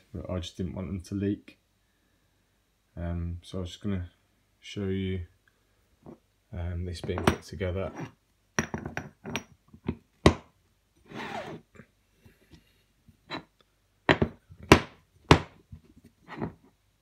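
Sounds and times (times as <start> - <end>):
metal parts knocking on wooden bench: 7.0 - 7.5, 8.6 - 10.4, 14.1 - 15.6
metal part scraping on wood: 16.2 - 16.7.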